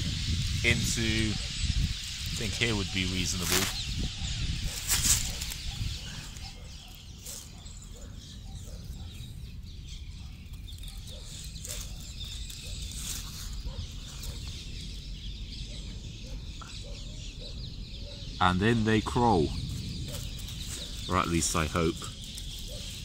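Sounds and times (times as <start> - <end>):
hands rustling dead leaves: 0.8 - 3.9, 4.6 - 7.8, 10.4 - 15.1, 19.5 - 23.0.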